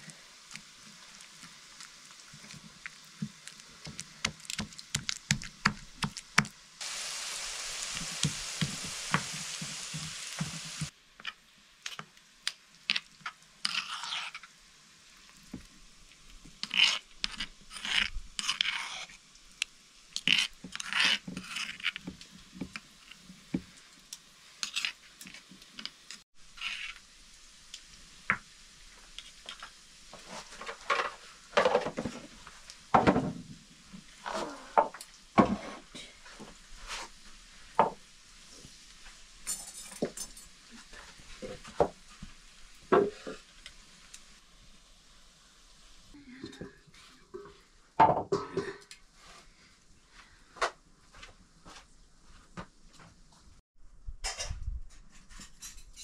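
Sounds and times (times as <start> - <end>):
steady hiss: 0.0 - 18.4, 19.0 - 48.0
spoon scraping metal bowl: 13.6 - 14.5, 16.6 - 19.2, 20.2 - 22.1
stone pestle grinding in mortar: 16.6 - 19.1, 20.2 - 22.1.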